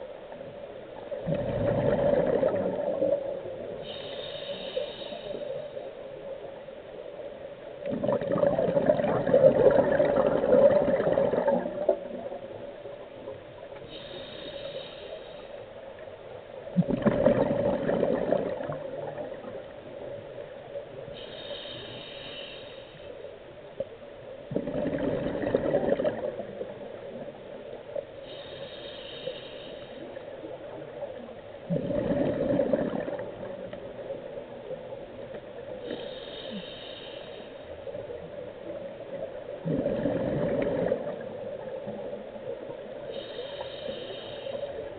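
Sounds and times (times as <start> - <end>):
exhaled bubbles rushing: 1.2 - 3.3, 7.8 - 12.3, 16.8 - 19.6, 24.5 - 26.8, 31.7 - 33.7, 39.6 - 41.7
regulator inhalation hiss: 3.7 - 5.9, 13.8 - 15.7, 21.2 - 23.3, 28.2 - 30.4, 35.9 - 37.9, 43.0 - 44.9.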